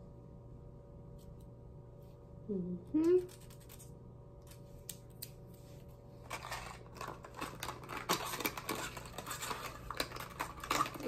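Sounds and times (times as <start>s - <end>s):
plastic package rustling: 6.2s - 11.0s.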